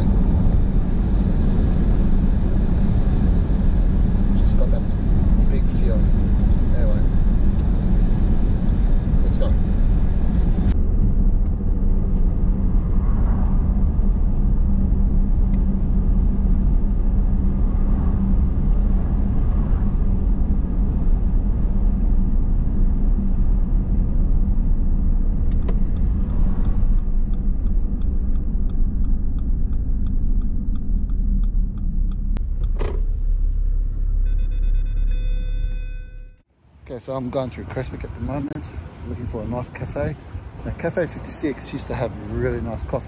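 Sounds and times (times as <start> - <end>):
car engine and tyre rumble: 0.0 - 43.0
light regular ticking: 25.4 - 32.7.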